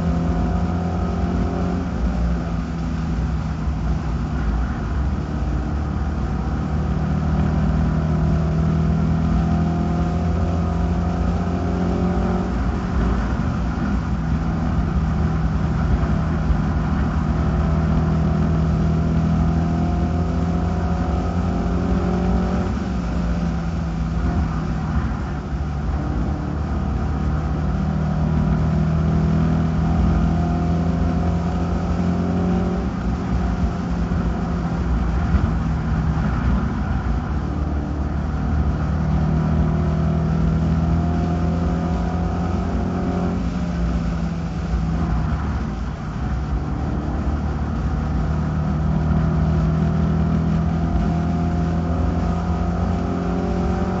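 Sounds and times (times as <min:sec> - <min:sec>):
race car engine: 0:00.0 - 0:54.0.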